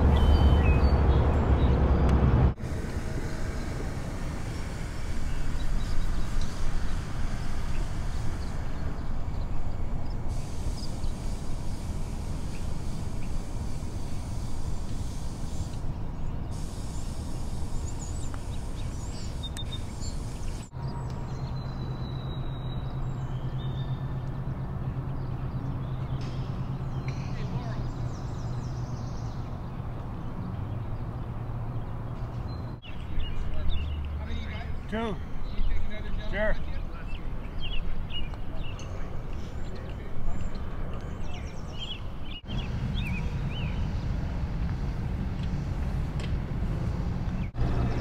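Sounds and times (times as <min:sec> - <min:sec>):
steady low hum: 0:00.0 - 0:21.4
low outdoor rumble: 0:00.0 - 0:21.7, 0:33.0 - 0:48.0.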